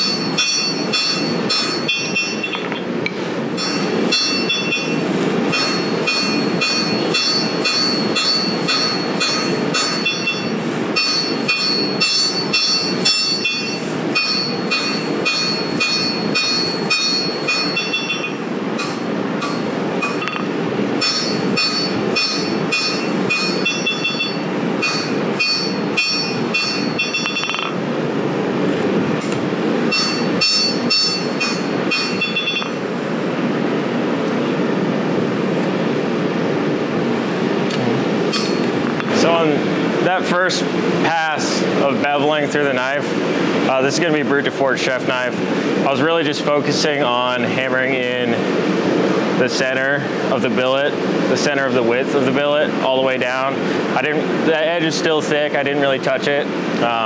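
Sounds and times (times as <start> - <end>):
hammer ringing on steel on anvil: 0.0 - 2.7, 3.6 - 5.0, 5.6 - 27.8, 29.9 - 32.8
gas forge roaring: 0.0 - 57.0.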